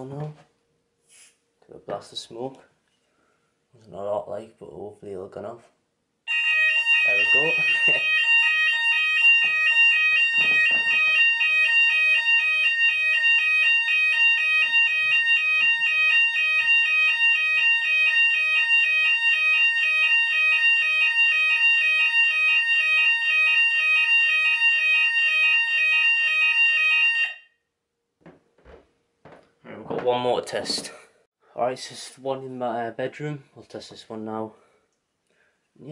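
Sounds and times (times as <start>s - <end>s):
alternating two-note alarm tone: 6.3s - 27.4s
steady high alarm tone: 6.3s - 27.6s.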